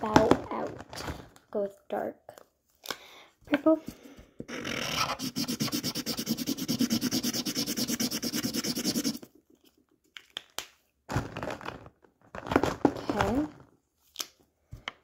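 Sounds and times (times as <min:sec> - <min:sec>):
scribbling on paper: 0:04.9 - 0:09.2.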